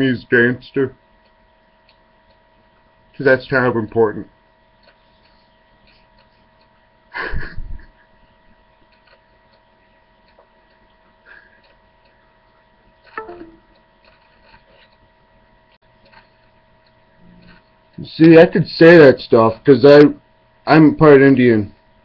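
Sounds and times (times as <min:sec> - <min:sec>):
electrical hum: 0:00.0 - 0:22.0
man laughing stifled: 0:07.1 - 0:08.2.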